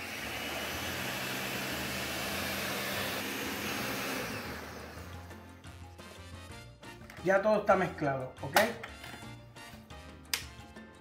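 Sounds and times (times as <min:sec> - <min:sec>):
blender motor whirring: 0:00.0 - 0:05.4.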